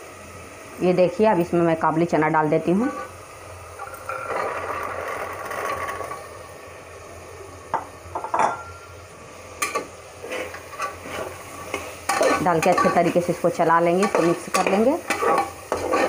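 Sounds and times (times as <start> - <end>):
metal spatula scraping cooker: 2.7 - 3.2, 3.8 - 6.2, 9.6 - 16.0.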